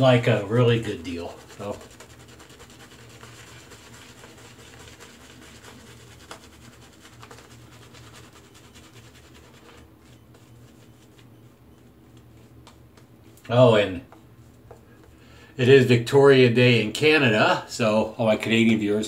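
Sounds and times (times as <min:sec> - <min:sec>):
shaving brush scrubbing lather: 0:00.0 - 0:11.4.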